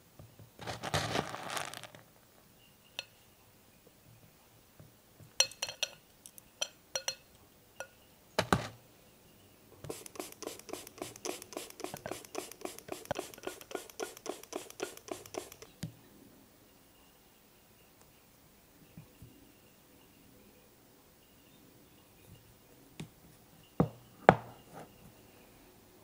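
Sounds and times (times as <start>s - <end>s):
fast even run of clicks: 9.9s - 15.8s.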